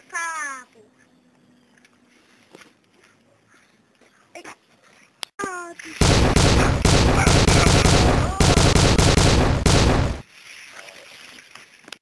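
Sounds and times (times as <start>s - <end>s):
rapid machine-gun fire: 6.0s - 10.2s.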